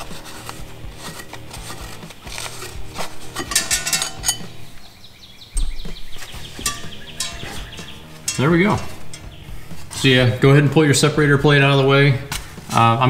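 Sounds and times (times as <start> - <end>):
flywheel clinking on metal: 3.3 - 4.6, 6.5 - 10.0.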